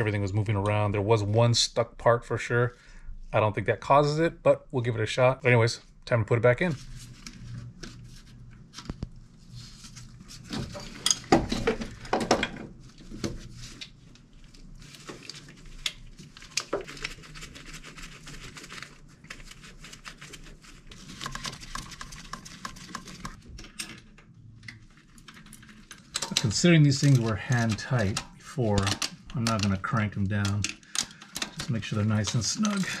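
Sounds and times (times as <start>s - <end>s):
light handling rustle: 24.6s - 33.0s.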